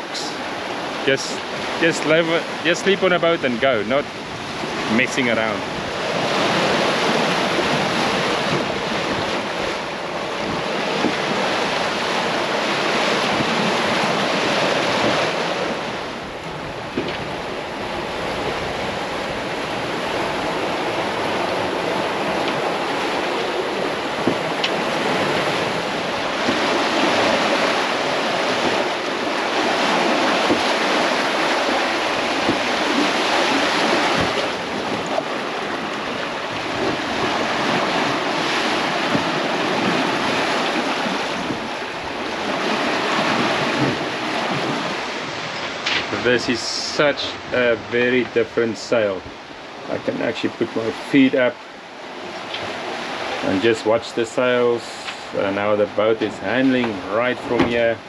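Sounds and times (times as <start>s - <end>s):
waves rushing past hulls: 0.0s - 58.0s
wind buffeting microphone: 4.0s - 50.4s.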